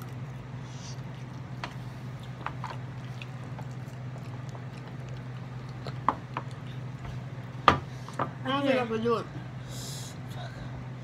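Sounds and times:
chewing: 0.0s - 7.4s
steady low hum: 0.0s - 11.0s.

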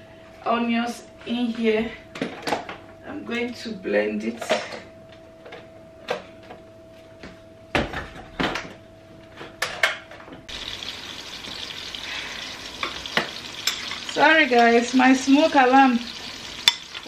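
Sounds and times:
pots sizzling on a hob: 10.5s - 17.0s.

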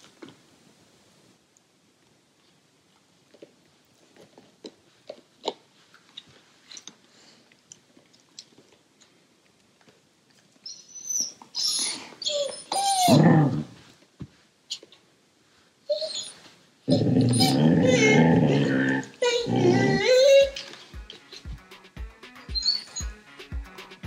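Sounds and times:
dog gnawing on a chew: 2.0s - 10.7s
dog whining and yowling: 10.6s - 13.8s, 15.9s - 20.9s, 22.4s - 23.2s.

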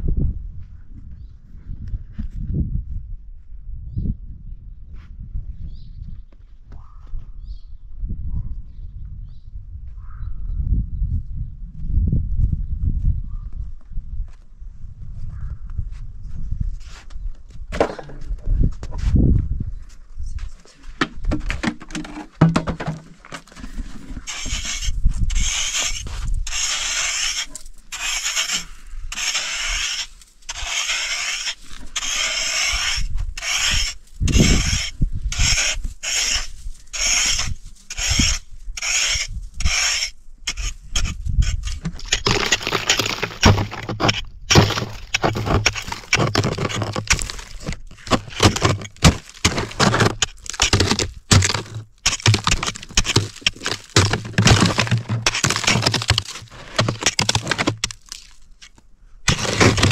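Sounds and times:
rough scraping strokes: 21.3s - 59.9s.

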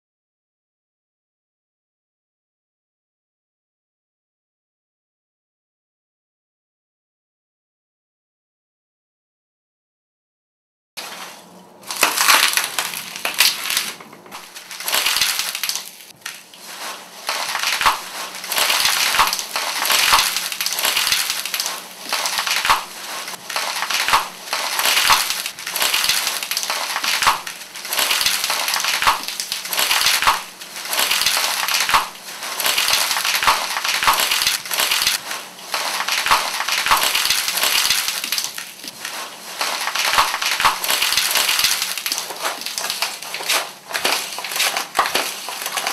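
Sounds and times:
packing peanuts crunching underfoot: 11.0s - 45.9s.

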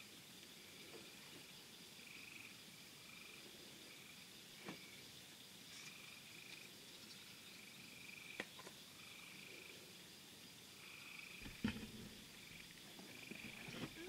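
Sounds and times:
frogs trilling: 0.0s - 14.0s
insects buzzing: 0.0s - 14.0s
loud thump: 11.4s - 12.2s.

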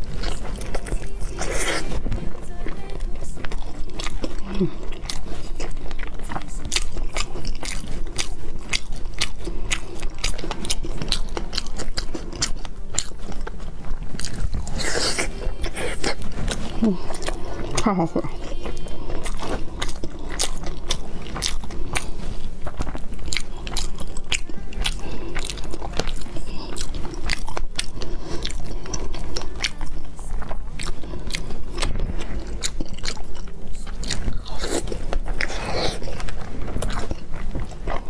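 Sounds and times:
chewing with mouth clicks: 0.0s - 38.0s.

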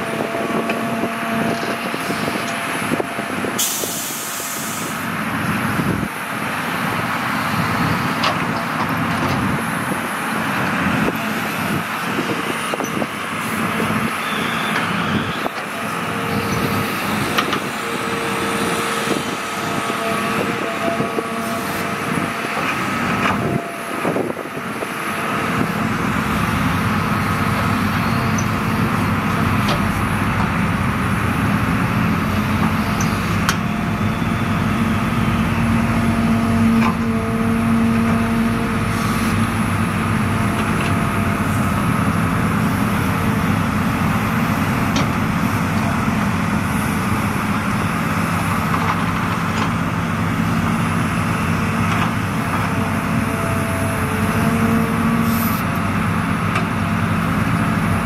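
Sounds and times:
excavator diesel engine whining: 0.0s - 58.0s
excavator clunks: 14.7s - 18.0s.

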